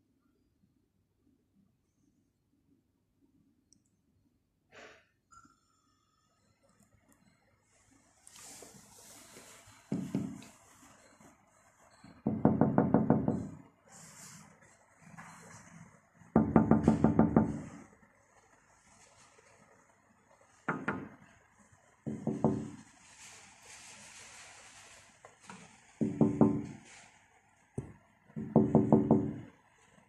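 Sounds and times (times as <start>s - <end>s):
taps on window pane: 16.4s - 17.6s, 20.7s - 21.2s, 22.1s - 22.8s, 26.0s - 26.8s, 27.8s - 29.5s.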